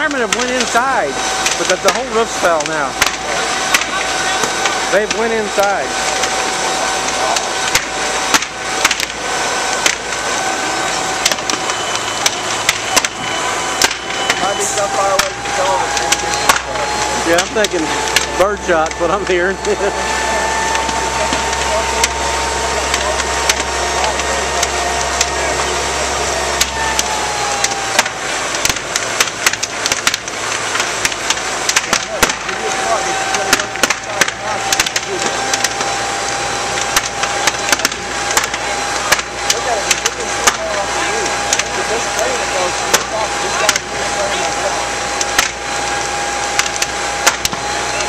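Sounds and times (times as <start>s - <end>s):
fire crackling and popping: 0.0s - 48.0s
fire engine motor: 0.0s - 48.0s.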